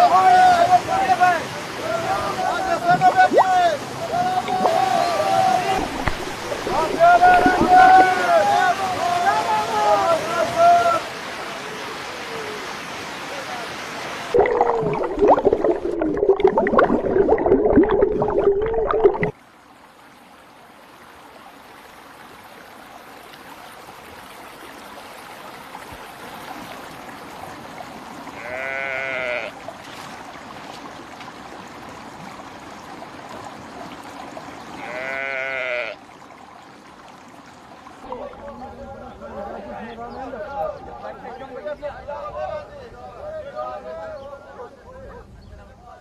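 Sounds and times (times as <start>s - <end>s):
rushing splashing water: 0.0s - 38.7s
stream flowing: 0.0s - 41.7s
sheep bleating: 28.4s - 29.6s, 34.8s - 36.0s.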